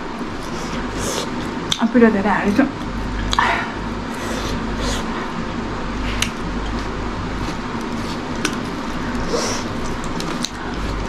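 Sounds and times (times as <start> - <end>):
background hum and hiss: 0.0 - 11.0
chewing: 6.1 - 11.0
fingers mixing rice: 6.1 - 11.0.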